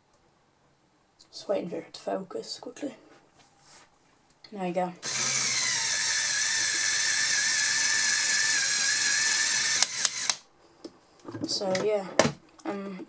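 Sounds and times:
sharp clicks: 9.4 - 10.4.

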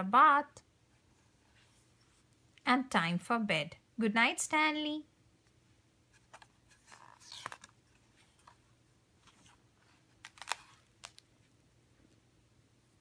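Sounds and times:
book rustling and tapping: 6.1 - 8.6, 10.2 - 11.3.

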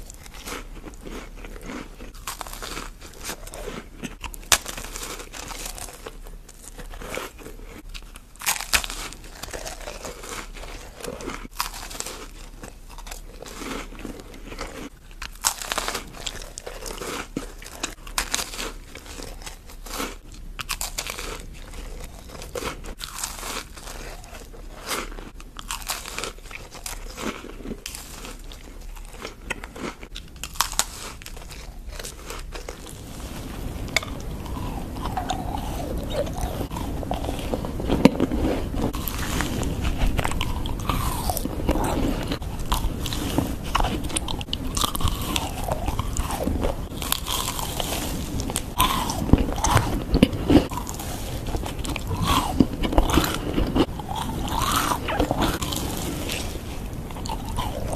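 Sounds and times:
crisp shells crunching: 0.0 - 20.0, 20.6 - 57.9
chewing with wet mouth clicks: 33.8 - 57.9.

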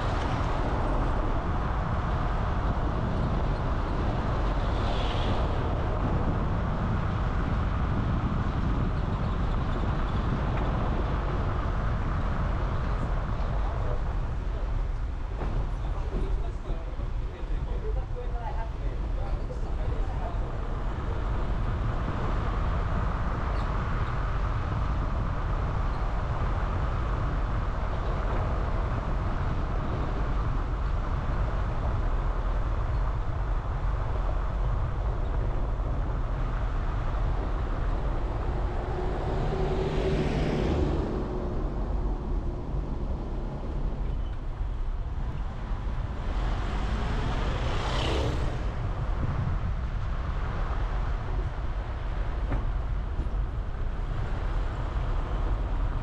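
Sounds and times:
car engine and road rumble: 0.0 - 56.0
vehicles passing: 0.0 - 56.0.

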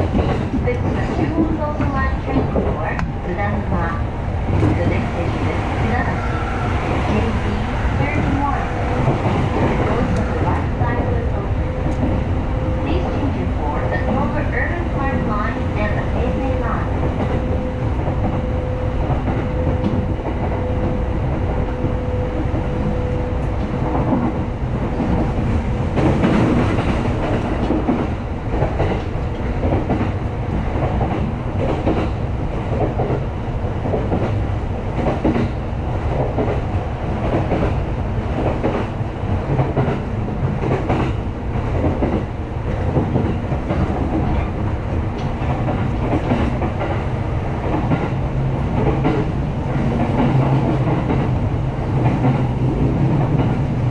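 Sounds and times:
clickety-clack over rail joints: 0.0 - 53.9
train wheels rumbling on rails: 0.0 - 53.9.

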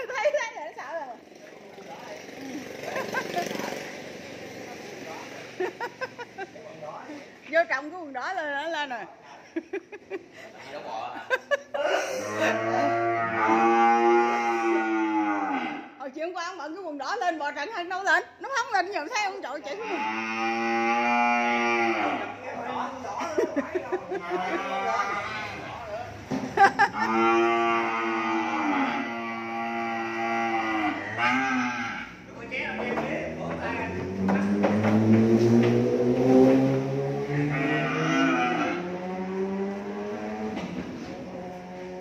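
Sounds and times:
cow mooing: 12.2 - 16.0, 19.8 - 22.4, 24.2 - 25.6, 26.8 - 32.2, 37.1 - 40.6.

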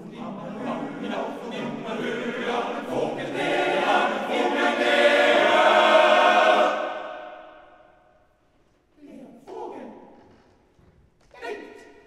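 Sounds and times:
men's choir singing a cappella: 0.0 - 7.6.

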